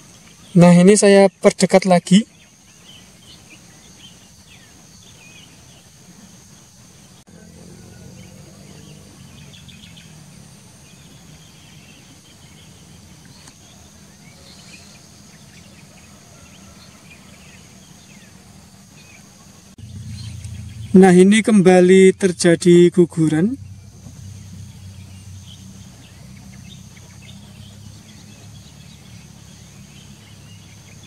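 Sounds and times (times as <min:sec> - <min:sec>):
high insect buzz: 0:02.4 - 0:31.0
bird chirps: 0:07.3 - 0:31.0
low steady rumble: 0:19.7 - 0:30.8.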